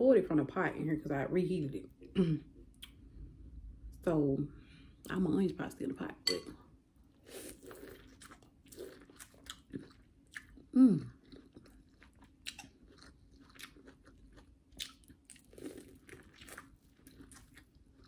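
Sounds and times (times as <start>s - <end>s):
person chewing corn on the cob: 7.3s - 18.0s.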